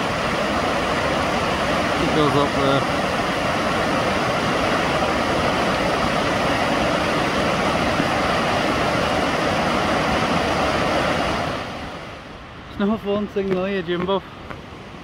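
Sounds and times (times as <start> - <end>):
waterfall pouring: 0.0 - 11.7.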